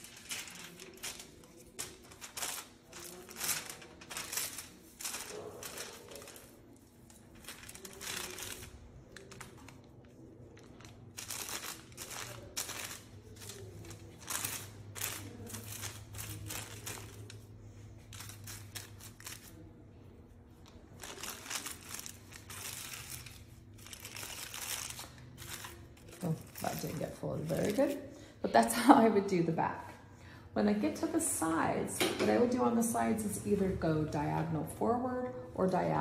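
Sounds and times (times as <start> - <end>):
aluminium foil crinkling: 0.0 - 19.9, 20.5 - 28.2.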